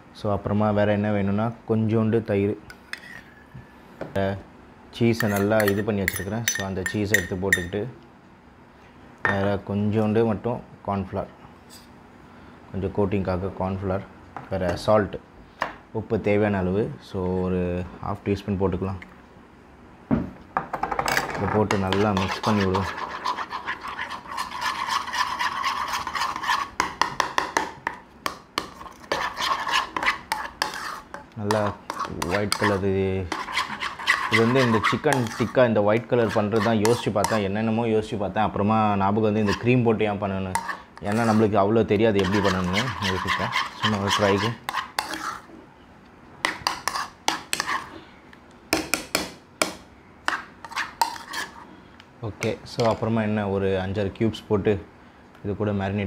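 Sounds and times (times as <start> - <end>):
spoon stirring in bowl: 2.8 - 3.3, 5.2 - 7.8, 21.4 - 37.5, 39.4 - 39.8, 40.5 - 45.5, 46.4 - 47.9, 50.2 - 51.6
spoon clinking against bowl: 5.2 - 7.7.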